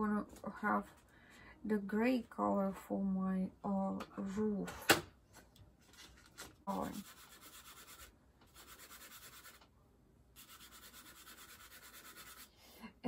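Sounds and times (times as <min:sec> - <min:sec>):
pastel scratching on paper: 0:06.7 - 0:09.6, 0:10.4 - 0:12.6.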